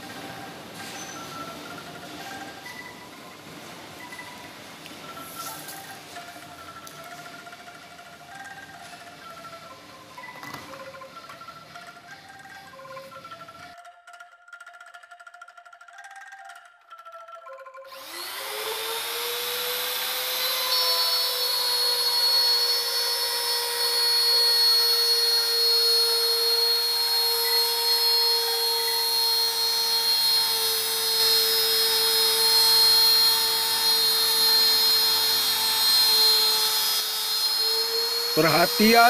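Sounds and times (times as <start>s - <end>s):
trim router whining: 17.9s - 39.0s.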